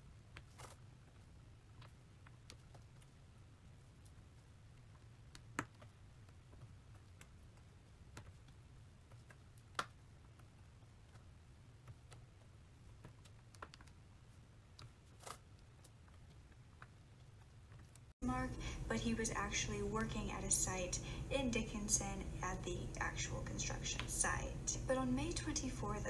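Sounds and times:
low steady hum: 18.2 - 26.0.

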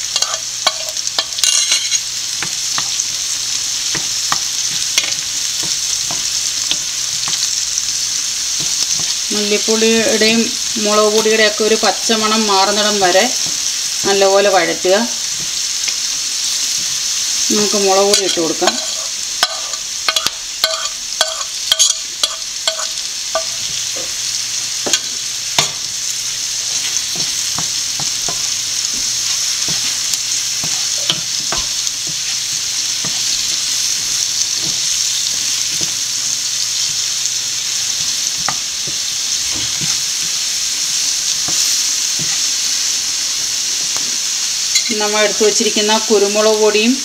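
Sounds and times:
vegetables sizzling in oil: 0.0 - 47.0
wooden spoon scraping and knocking pan: 0.1 - 3.1, 3.8 - 7.8, 18.0 - 24.2, 24.8 - 25.9, 26.6 - 33.8, 38.4 - 40.2.

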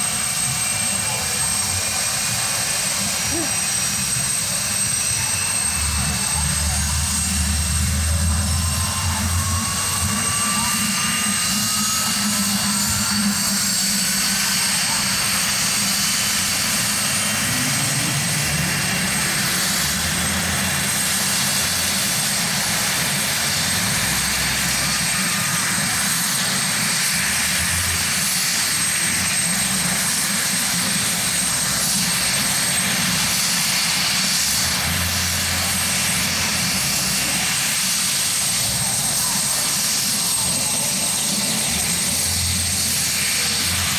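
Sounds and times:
helicopter engine whine: 0.0 - 43.9.

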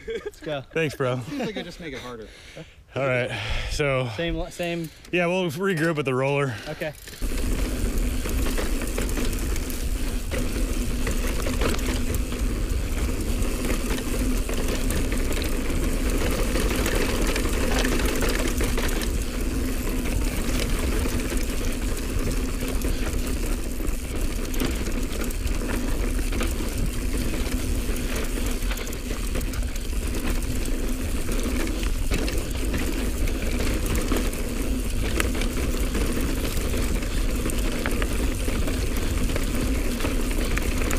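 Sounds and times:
bike rattling over trail: 3.3 - 40.9
tyre noise on dirt: 6.7 - 40.9.

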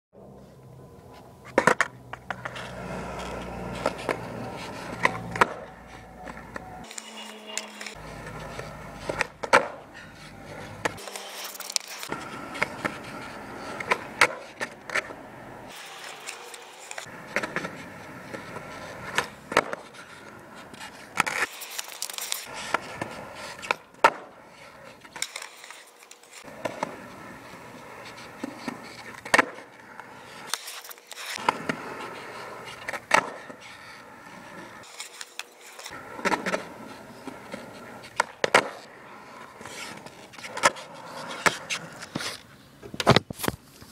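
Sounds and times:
skateboard wheels rolling: 0.2 - 43.9
skateboard landing clack: 4.9 - 7.1, 9.0 - 9.8, 13.8 - 15.1, 19.1 - 19.9, 22.3 - 24.3, 29.2 - 29.7, 32.8 - 33.5, 38.1 - 38.8.

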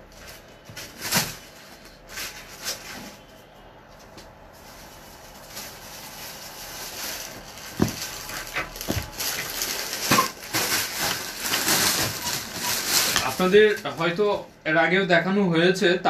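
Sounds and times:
fabric rustling: 4.4 - 14.4.

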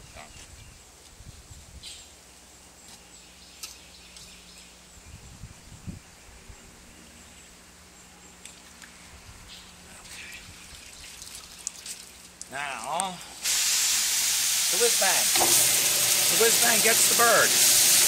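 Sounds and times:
water streaming and dripping: 10.0 - 18.0
water sloshing and splashing: 10.5 - 12.5.

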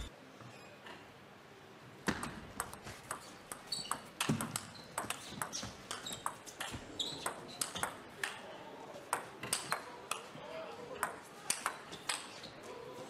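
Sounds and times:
table tennis ball clicking: 2.6 - 6.4
shoe squeaks: 3.6 - 4.1, 4.7 - 7.6.

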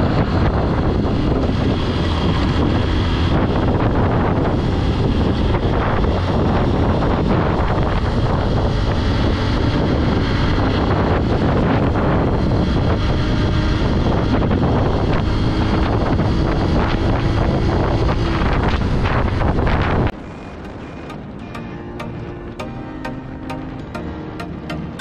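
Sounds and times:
motorcycle engine running: 0.0 - 25.0
wind buffeting microphone: 0.0 - 25.0.

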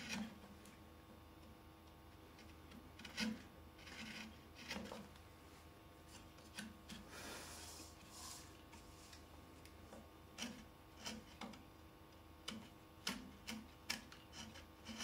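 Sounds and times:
carving gouge scraping wood: 0.0 - 0.4, 2.3 - 5.1, 10.3 - 11.6, 12.4 - 15.0
soft rubbing: 7.0 - 9.4.

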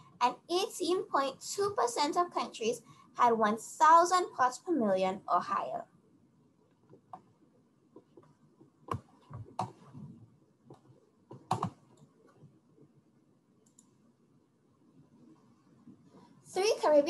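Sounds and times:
computer keyboard clicks: 10.7 - 12.1.

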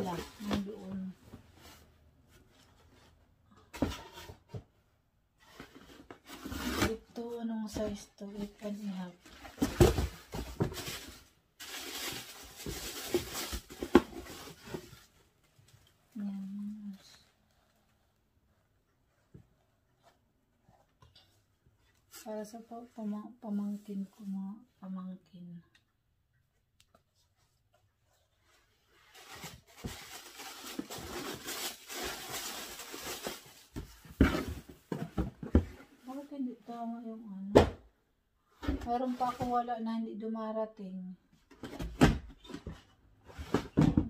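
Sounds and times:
rustling and scraping with dull knocks: 0.0 - 24.4, 26.9 - 36.4, 38.5 - 39.7, 41.4 - 44.0
hands rummaging in cardboard box: 7.7 - 15.1, 29.1 - 36.2
paper rustling and crinkling: 9.5 - 17.7, 27.2 - 34.6.

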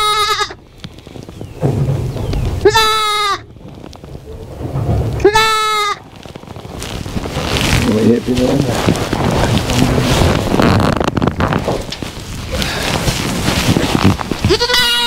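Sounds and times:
goat kid bleating: 0.0 - 0.6, 2.6 - 3.4, 5.2 - 6.0, 14.4 - 15.0
low rumbling noise: 0.6 - 14.7.

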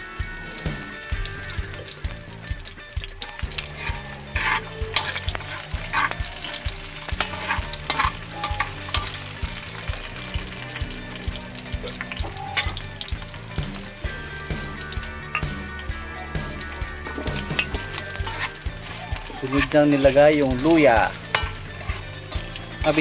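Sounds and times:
onion sizzling in hot oil: 0.0 - 23.0
spatula scraping a wok: 3.2 - 10.7, 16.6 - 23.0.

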